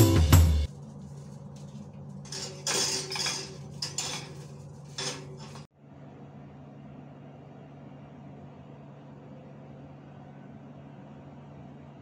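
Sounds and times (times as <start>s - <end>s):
steady low hum: 0.6s - 12.0s
cookware and utensils clattering: 1.7s - 5.7s.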